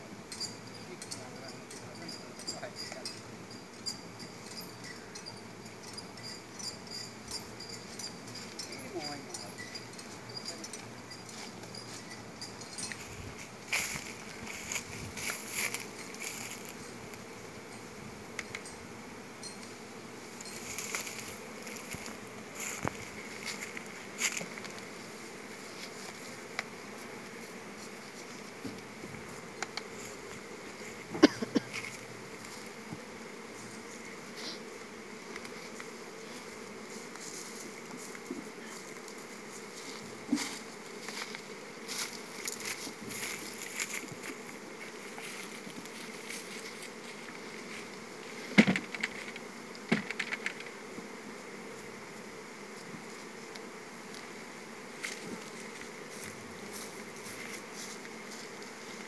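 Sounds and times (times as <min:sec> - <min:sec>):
honeybees buzzing: 0:00.0 - 0:59.0
wooden hive boxes knocking: 0:48.5 - 0:51.2.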